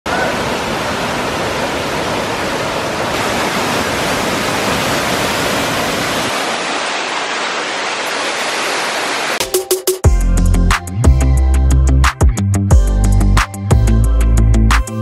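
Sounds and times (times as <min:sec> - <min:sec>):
waterfall rushing: 0:00.1 - 0:09.4.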